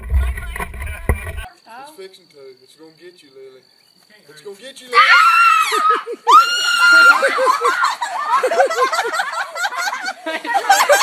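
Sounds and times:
girl screaming: 4.9s - 7.9s
rapid shrieks and laughter: 5.0s - 11.0s.

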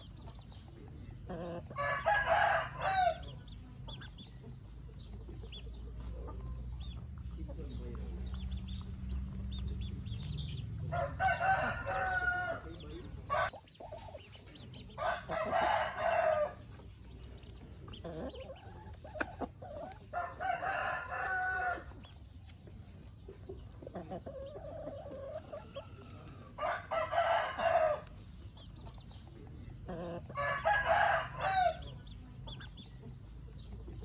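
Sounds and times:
rooster clucks: 1.2s - 3.3s, 29.8s - 32.8s
roosters crowing: 1.2s - 3.6s, 9.1s - 13.6s, 14.8s - 17.0s, 17.8s - 22.3s, 23.9s - 28.4s, 29.8s - 32.4s
low steady rumble: 2.7s - 34.0s.

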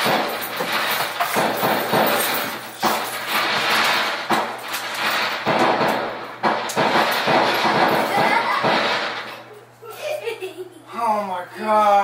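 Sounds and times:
recorded gunfire bangs: 0.0s - 9.4s.

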